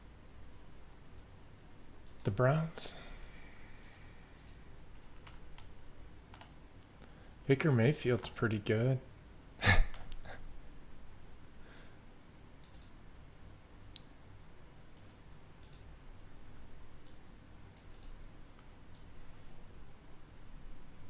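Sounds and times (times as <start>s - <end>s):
faint clicks: 3.8s - 7.1s, 12.6s - 13.0s, 15.0s - 15.9s, 17.0s - 19.1s.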